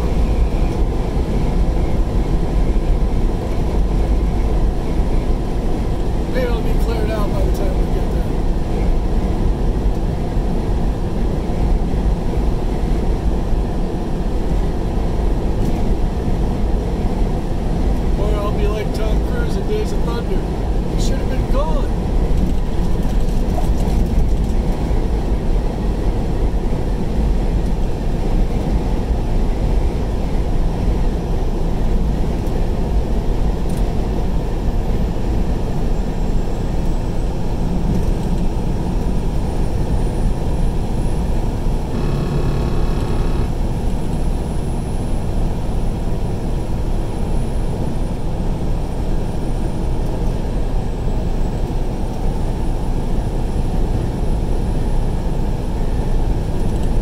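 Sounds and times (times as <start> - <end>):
road and engine noise: 0.0 - 57.0
short pitched tone: 41.8 - 43.6.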